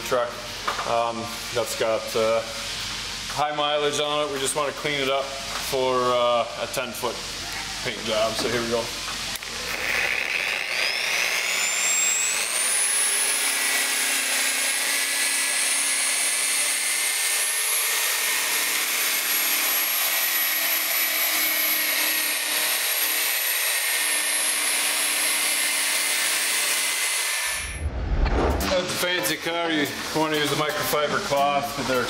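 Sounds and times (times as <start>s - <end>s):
angle grinder whining: 7.2s - 27.8s.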